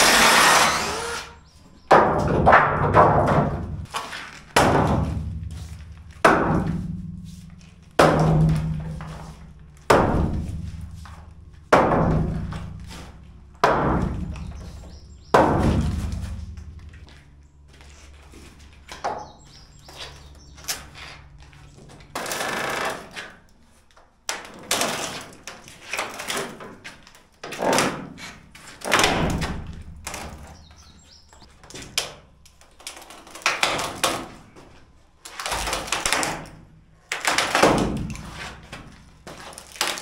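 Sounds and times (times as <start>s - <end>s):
wooden boards knocking and banging: 1.9s - 7.3s, 7.9s - 17.1s, 24.3s - 31.0s, 35.3s - 40.0s.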